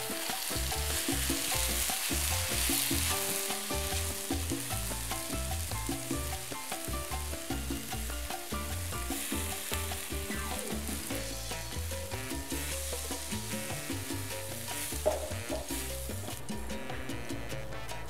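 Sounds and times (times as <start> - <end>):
background music with bass line: 0.0 - 18.0
paste sizzling in a wok: 0.0 - 18.0
wooden spatula stirring: 0.2 - 6.8.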